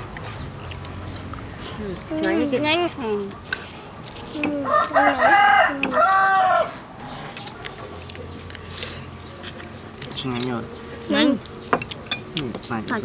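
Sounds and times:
rooster crowing: 4.6 - 6.8.

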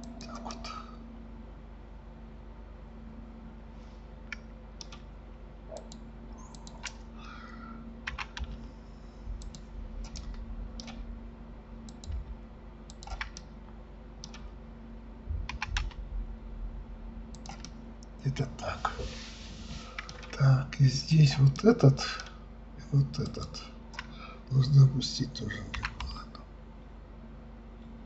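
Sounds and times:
steady low hum: 0.0 - 28.0
keyboard keys clicking: 4.3 - 5.1, 8.0 - 8.6, 9.4 - 11.0, 11.8 - 12.3, 12.9 - 13.5, 14.2 - 14.5, 15.4 - 16.0, 17.4 - 17.8, 25.7 - 26.2.

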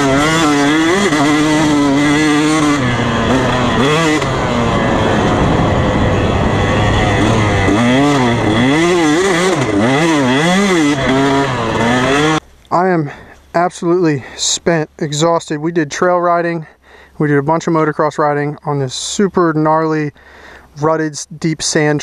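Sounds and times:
two-stroke motorcycle revving: 0.0 - 12.5.

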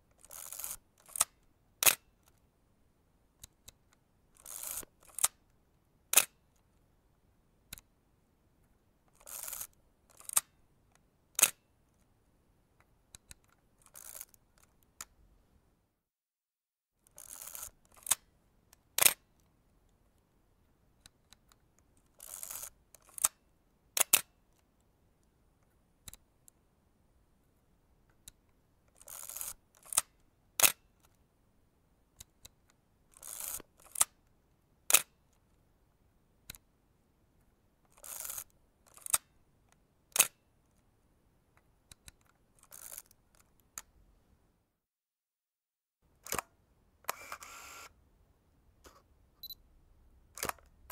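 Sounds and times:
camera mechanism clicks: 11.4 - 11.6, 19.0 - 19.2, 46.2 - 46.5, 47.1 - 47.9, 50.4 - 50.7
camera mechanism rasping: 17.2 - 18.2, 47.1 - 47.9.

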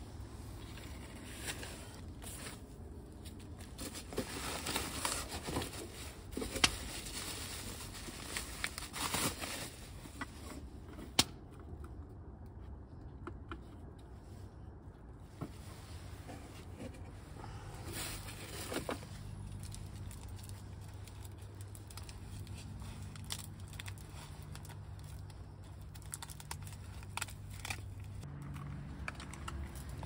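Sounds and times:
bubble wrap and cardboard rustling: 0.6 - 10.8, 17.6 - 28.3.

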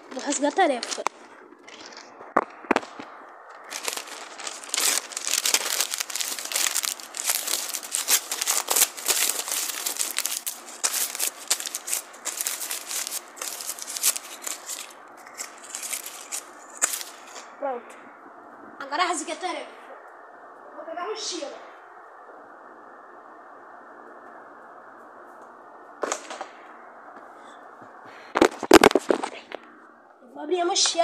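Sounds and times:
paper tearing and crumpling: 3.6 - 17.4, 28.4 - 29.4.

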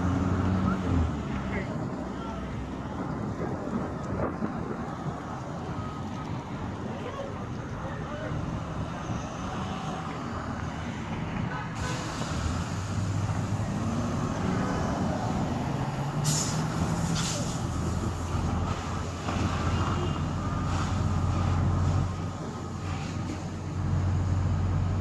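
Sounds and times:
hose spray and steam hissing: 11.8 - 13.6, 16.2 - 19.6, 20.6 - 21.6, 22.7 - 23.6
fire engine droning: 11.8 - 25.0.

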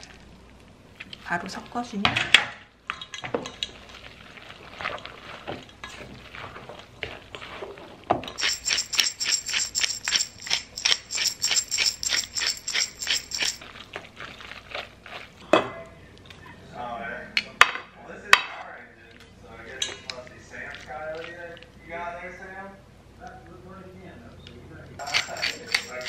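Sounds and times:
pepper mill grinding: 8.4 - 13.7, 25.0 - 26.0.

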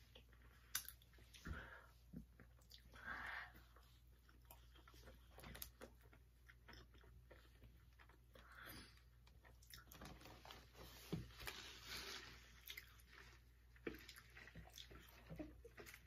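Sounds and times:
faint chewing: 0.0 - 16.0
wet mouth clicks and smacks: 0.6 - 1.1.

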